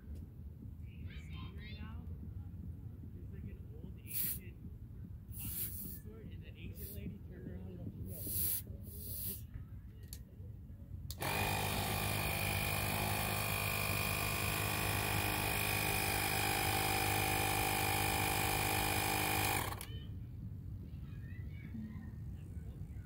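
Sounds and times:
tire inflator compressor humming: 4.1s - 4.4s, 5.3s - 6.1s, 6.7s - 7.1s, 8.1s - 9.4s, 11.1s - 20.0s.

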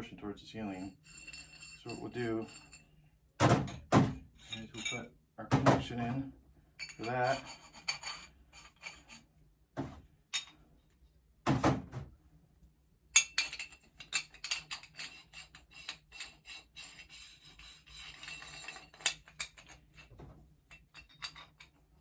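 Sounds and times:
metal pipe fittings clinking: 0.7s - 2.9s, 4.4s - 5.1s, 6.8s - 9.3s, 10.3s - 10.6s, 13.1s - 22.0s.

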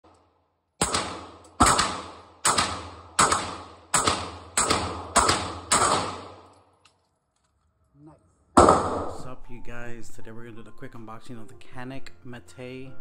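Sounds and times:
pistol shots with echo: 0.8s - 6.5s, 8.6s - 9.2s.

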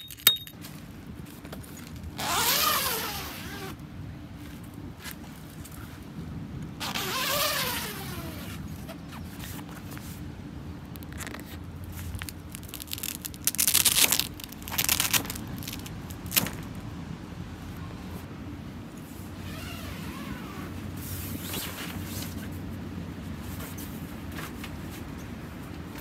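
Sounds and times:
zipper rasping: 2.2s - 3.8s, 6.8s - 9.4s.

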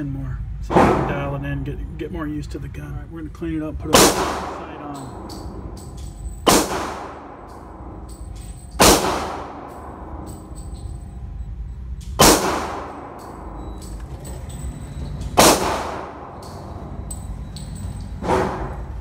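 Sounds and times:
gunshots with ringing echo: 3.9s - 11.1s, 12.2s - 14.0s, 15.4s - 17.0s.

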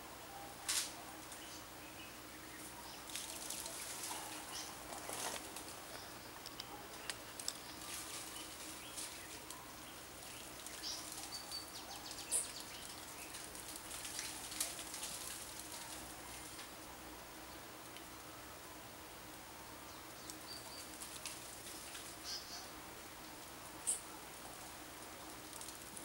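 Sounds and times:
dry clicks and crackles: 3.1s - 9.6s, 12.1s - 16.9s, 17.8s - 18.1s, 20.2s - 22.2s, 23.3s - 26.0s.

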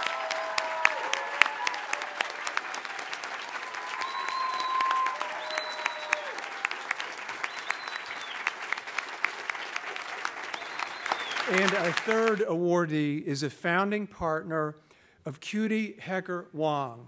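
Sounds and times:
audience applauding: 0.0s - 12.6s.

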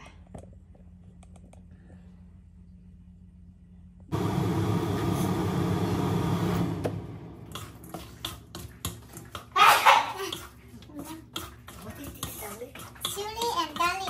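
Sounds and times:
stir-frying rushing noise: 4.2s - 14.0s
wooden spatula scraping a wok: 7.6s - 14.0s.

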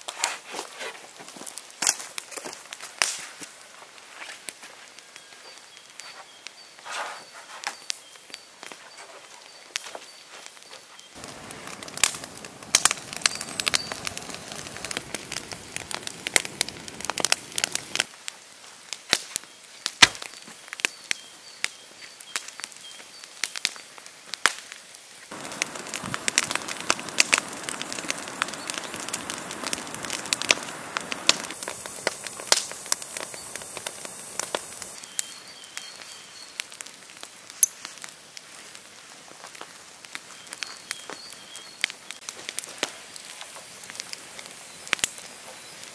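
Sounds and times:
wood fire crackling and popping: 0.1s - 6.8s, 7.6s - 45.9s
rushing hiss: 11.2s - 18.1s, 25.3s - 35.1s.

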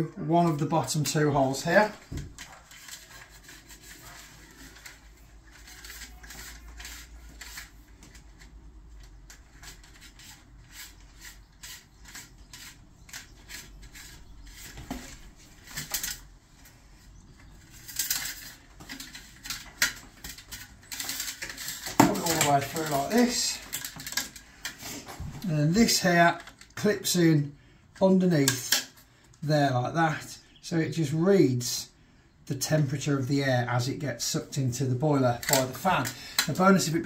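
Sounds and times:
cable scraping against plastic pipe: 0.4s - 27.0s, 34.5s - 37.0s.

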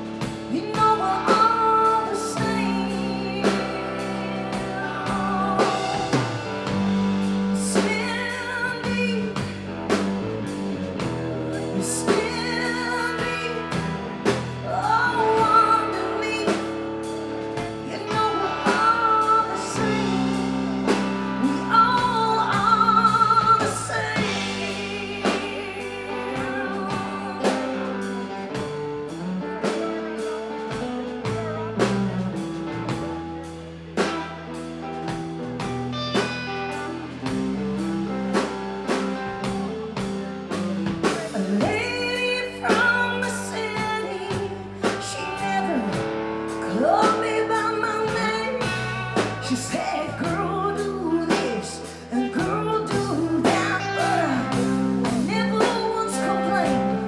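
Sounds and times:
drum kit steady beat: 0.0s - 57.0s
electric guitar: 0.0s - 57.0s
woman singing with vibrato: 0.2s - 10.2s, 11.0s - 28.8s, 41.0s - 57.0s.

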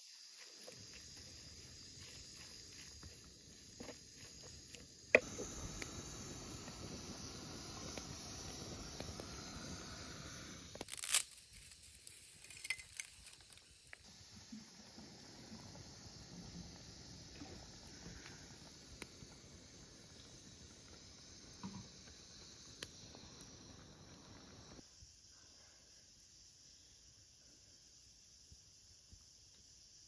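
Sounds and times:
fire crackling: 0.3s - 24.8s
wooden spatula stirring: 0.4s - 5.0s
sauce sizzling in a frying pan: 5.2s - 10.7s.

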